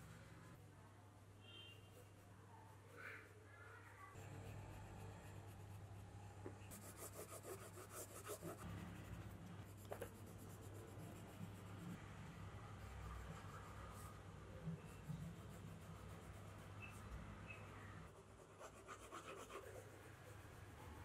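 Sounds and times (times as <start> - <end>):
faint low hum: 0.0 - 21.0
pencil scratching on paper: 4.2 - 21.0.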